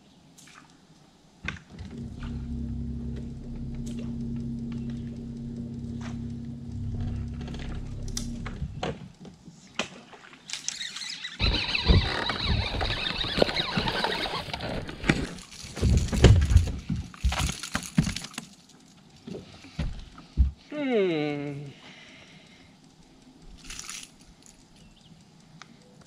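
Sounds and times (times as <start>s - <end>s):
trolling motor hum: 1.6s - 9.0s, 11.3s - 14.9s.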